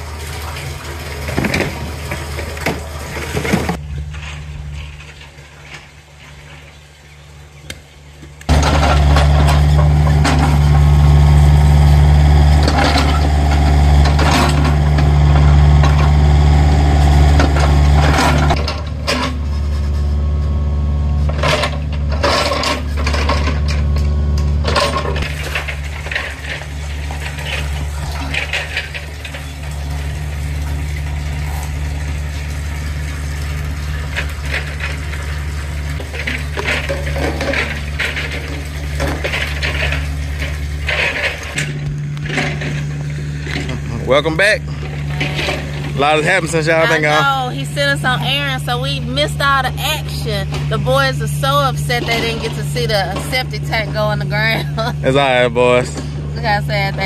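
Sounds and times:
engine running with deep hum: 0.0 - 57.0
metallic clanks and scrapes: 8.5 - 16.4, 17.0 - 32.2, 33.9 - 55.1.

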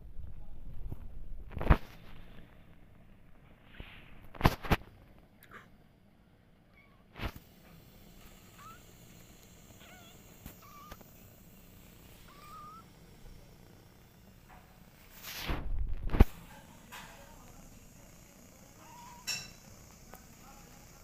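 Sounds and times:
kittens mewing: 8.3 - 14.2.

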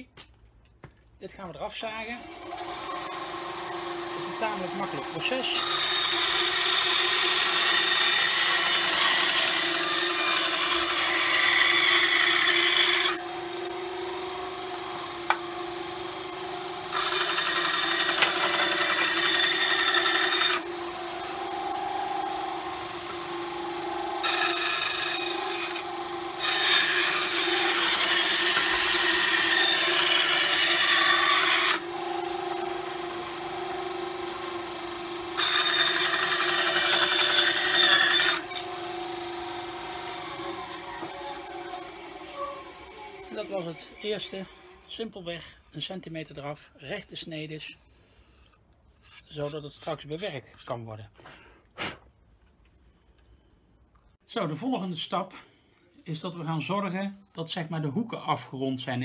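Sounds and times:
band saw motor humming: 2.0 - 45.0
saw blade rasping through wood: 2.1 - 45.0.

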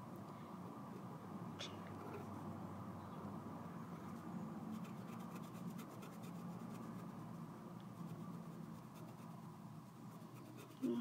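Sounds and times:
faint room hum: 0.0 - 11.0
pen scratching on paper: 4.7 - 7.4, 8.0 - 11.0.

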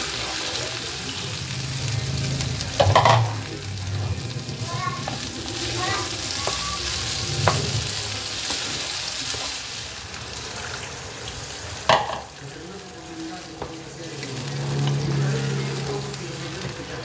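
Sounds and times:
food sizzling in a frying pan: 0.0 - 17.0
utensil knocking against pan: 2.8 - 3.3, 11.9 - 12.3.

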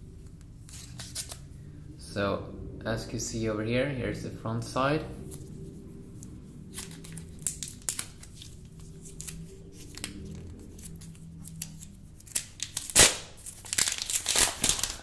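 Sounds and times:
plastic film ripping: 6.8 - 15.0.

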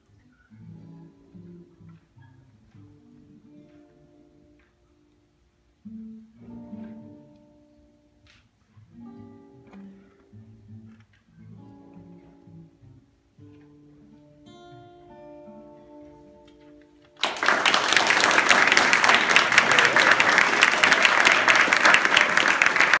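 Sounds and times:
acoustic guitars playing: 0.0 - 21.8
audience applause: 17.2 - 23.0.

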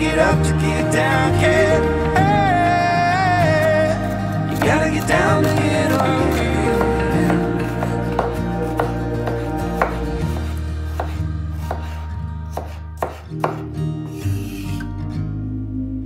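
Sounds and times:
soft background music: 0.0 - 16.0
knife chopping on wooden board: 5.4 - 13.6.

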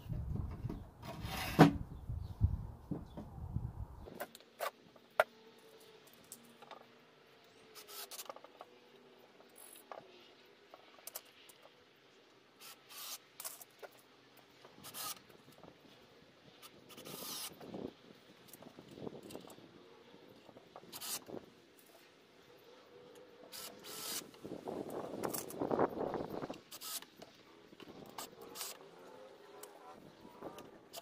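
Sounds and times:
short scrapes and rustles: 0.3 - 1.8.

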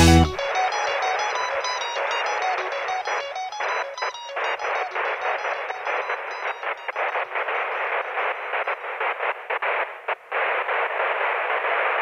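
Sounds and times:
stuttering static hiss: 0.0 - 12.0.

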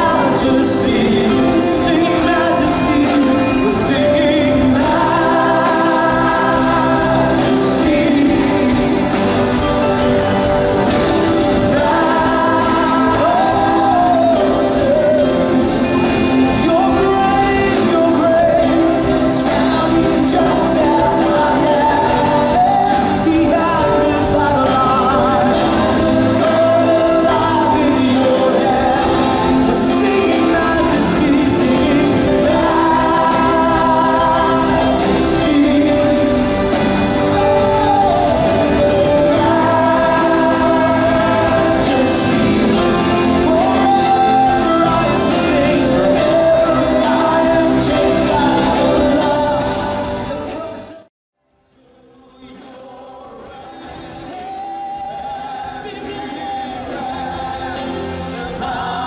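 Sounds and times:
people singing: 0.0 - 51.1, 51.8 - 59.0
worship band playing: 0.0 - 59.0.

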